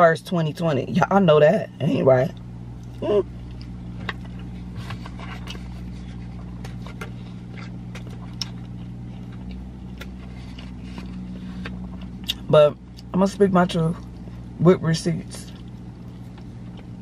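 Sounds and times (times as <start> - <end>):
car engine idling: 0.0 - 17.0
chewing: 2.3 - 13.1, 15.5 - 17.0.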